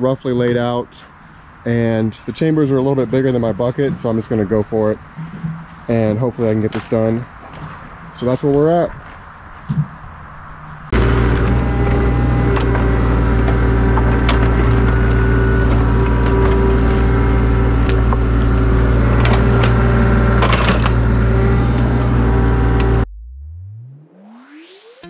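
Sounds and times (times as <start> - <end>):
machine knocks and clanks: 10.9 - 22.1
excavator engine humming: 10.9 - 23.1.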